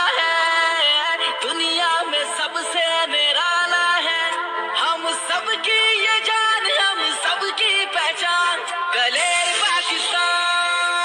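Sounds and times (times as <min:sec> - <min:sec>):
backing music: 0:04.0 - 0:11.0.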